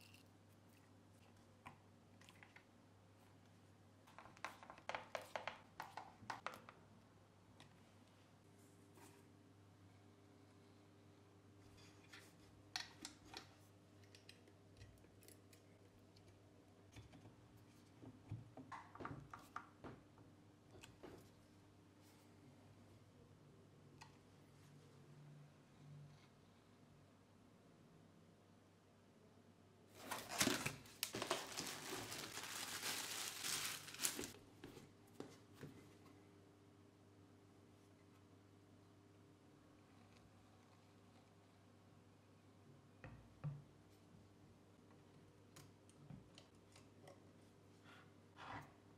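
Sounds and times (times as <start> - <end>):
plastic bag crinkling: 30.0 - 34.4.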